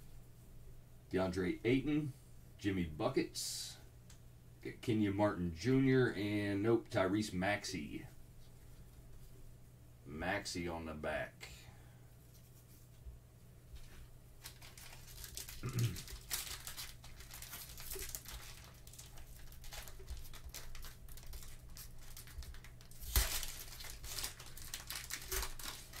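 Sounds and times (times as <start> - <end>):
cellophane ripping: 14.4 - 26.0
cellophane wrapper crinkling: 14.4 - 26.0.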